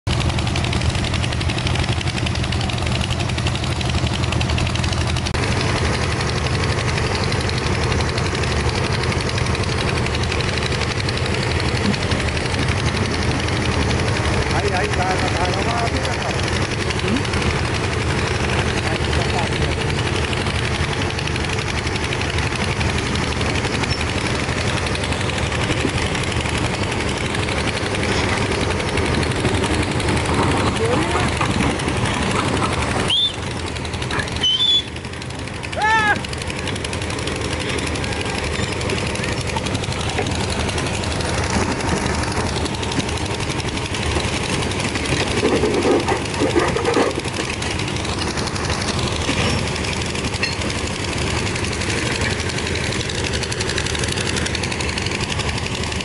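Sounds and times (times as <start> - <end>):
excavator diesel engines running: 0.0 - 56.0.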